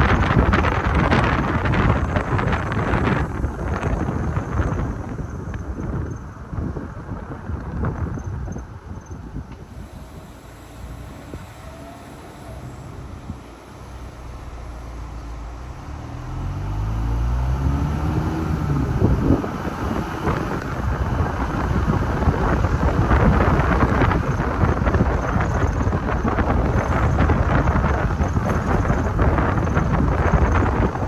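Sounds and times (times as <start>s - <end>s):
road noise: 0.0s - 31.0s
wind buffeting microphone: 0.0s - 31.0s
car engine accelerating: 9.5s - 31.0s.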